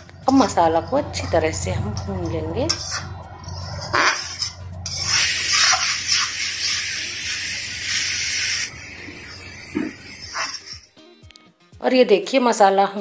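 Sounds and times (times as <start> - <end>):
spatula scraping metal pan: 0.0 - 6.8, 10.2 - 10.9
paste sizzling in hot oil: 2.7 - 10.9.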